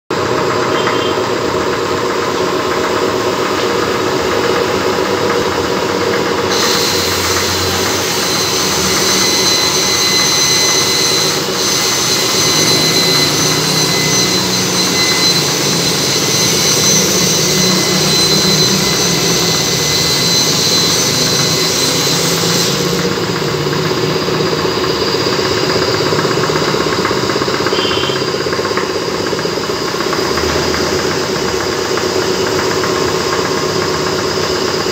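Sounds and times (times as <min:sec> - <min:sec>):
high steady whine: 0:00.1 - 0:34.9
machine drone: 0:00.1 - 0:34.9.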